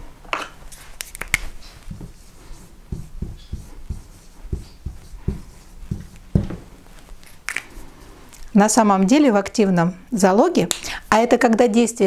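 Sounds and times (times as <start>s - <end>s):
marker knocking on whiteboard: 1.9s - 2.2s, 2.9s - 6.7s.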